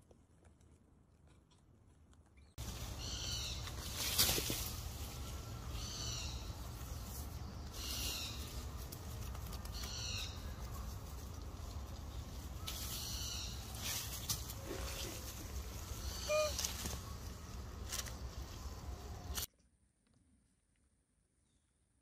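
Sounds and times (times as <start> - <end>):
bird giving high calls: 15.9 - 17.0.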